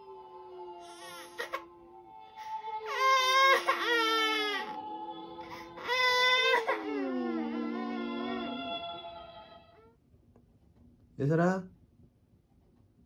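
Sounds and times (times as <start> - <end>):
soft lullaby melody: 0.0 - 9.7
baby crying: 0.8 - 1.8, 2.4 - 9.1.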